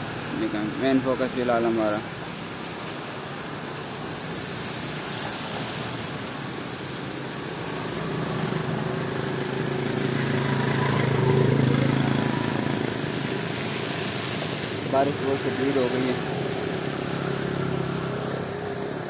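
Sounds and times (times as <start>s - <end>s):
heavy rain hissing: 0.0s - 19.0s
engine hum: 5.0s - 19.0s.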